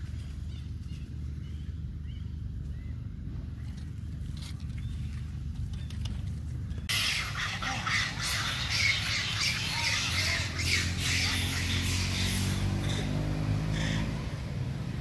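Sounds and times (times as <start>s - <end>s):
low steady hum: 0.0s - 15.0s
monkeys screeching: 6.9s - 14.4s.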